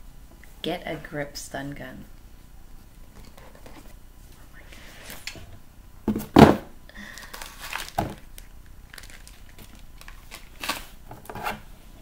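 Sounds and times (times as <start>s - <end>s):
packaging crinkling: 7.0s - 11.0s.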